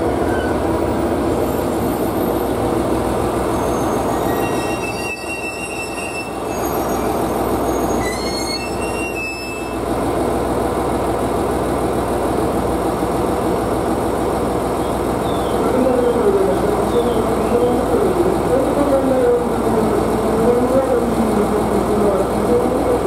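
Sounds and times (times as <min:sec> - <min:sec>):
diesel railcar engines running: 0:00.0 - 0:23.0
train wheel squeal: 0:00.2 - 0:00.7, 0:03.5 - 0:09.8.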